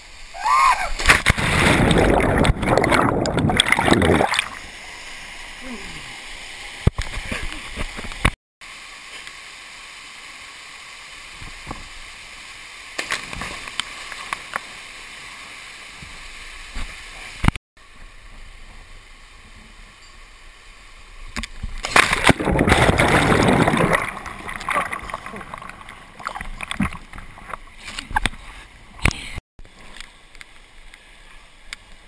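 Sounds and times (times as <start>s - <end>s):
knocks and splashes: 1.0s - 4.6s, 13.0s - 14.4s, 21.3s - 29.2s
bubbling churning water underwater: 1.4s - 4.6s, 22.2s - 27.5s
stream water rushing: 1.7s - 7.8s, 22.1s - 28.2s.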